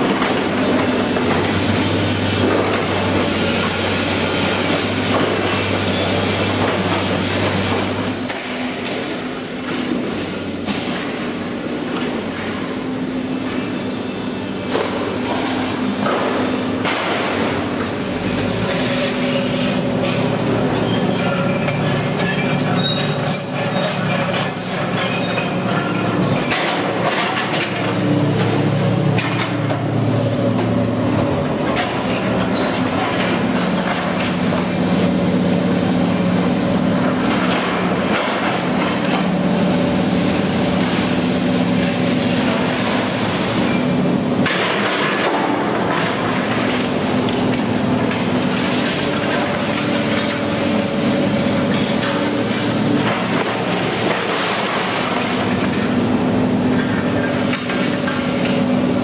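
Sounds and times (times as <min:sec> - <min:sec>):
diesel engine and hydraulics drone: 0:00.0 - 0:59.0
rubble and steel clattering: 0:16.0 - 0:30.0, 0:30.7 - 0:59.0
high metal squeals: 0:20.8 - 0:26.6, 0:31.3 - 0:33.0.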